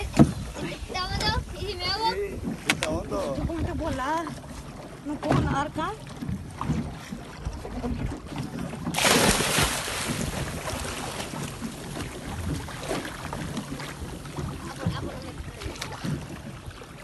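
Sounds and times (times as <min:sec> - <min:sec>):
wind buffeting microphone: 0:00.0 - 0:16.7
sea water splashing: 0:00.0 - 0:17.0
loud rush of water: 0:09.0 - 0:11.4.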